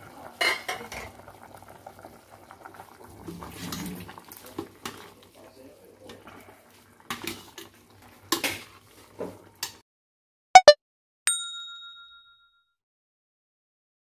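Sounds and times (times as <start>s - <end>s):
bell ding: 10.6s - 12.7s.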